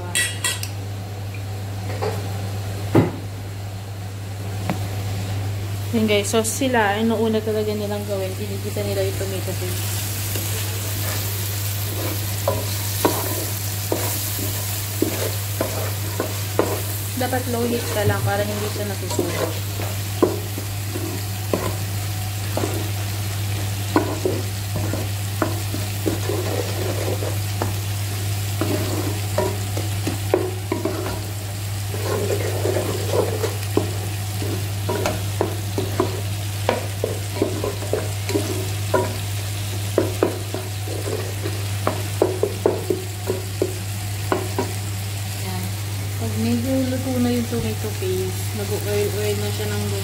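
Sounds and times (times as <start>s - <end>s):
steady low hum: 0.0s - 50.0s
food sizzling in oil: 5.5s - 50.0s
wooden spoon scraping a pot: 10.4s - 22.9s, 23.5s - 27.8s, 28.6s - 31.3s, 31.9s - 39.2s, 40.0s - 43.4s.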